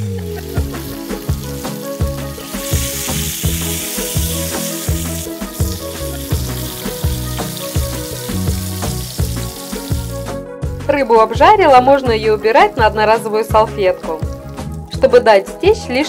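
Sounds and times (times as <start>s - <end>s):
fish sizzling in a pan: 0.0s - 10.4s, 13.2s - 15.2s
background music with steady beat: 0.0s - 16.0s.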